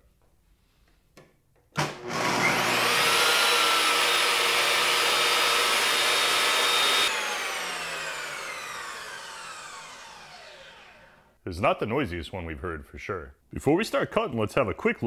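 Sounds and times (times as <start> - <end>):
table saw motor whining: 1.8 - 11.3.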